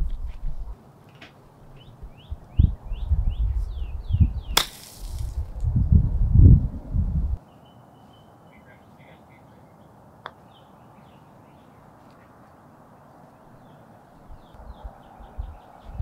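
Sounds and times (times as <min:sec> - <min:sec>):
low bumps: 0:02.3 - 0:07.4
golf club hitting ball: 0:04.6 - 0:05.4.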